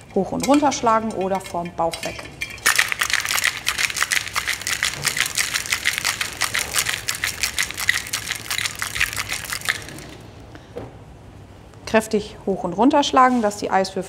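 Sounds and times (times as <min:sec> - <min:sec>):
ice rattling in cocktail shaker: 0:00.0 - 0:10.3.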